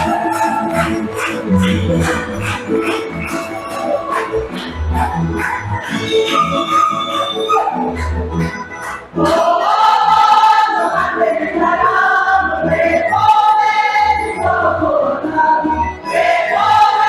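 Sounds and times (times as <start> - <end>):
group singing folk song: 0.0 - 2.3, 8.8 - 17.0
accordion and string band: 0.0 - 17.0.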